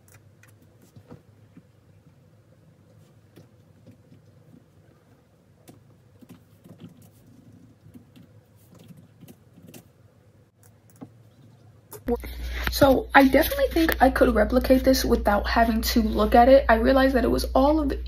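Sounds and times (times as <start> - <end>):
laptop keyboard typing: 5.6 - 9.9.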